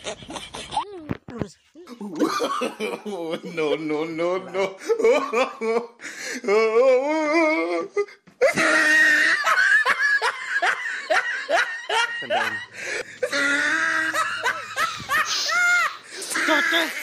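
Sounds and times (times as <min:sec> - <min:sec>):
person laughing: 0:08.4 - 0:17.0.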